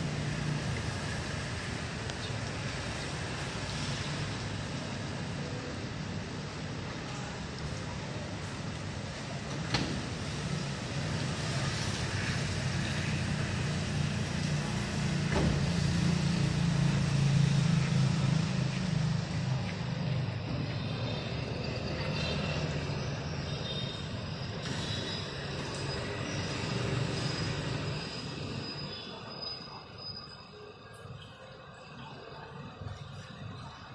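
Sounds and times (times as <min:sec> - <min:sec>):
road traffic: 0:00.0 - 0:33.9
vehicle engine hum: 0:08.4 - 0:28.7.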